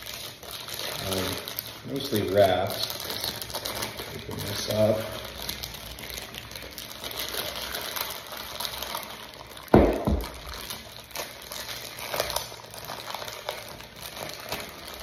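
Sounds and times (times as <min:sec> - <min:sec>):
plastic wrap crinkling: 0:00.0 - 0:15.0
heavy thump: 0:09.8 - 0:10.3.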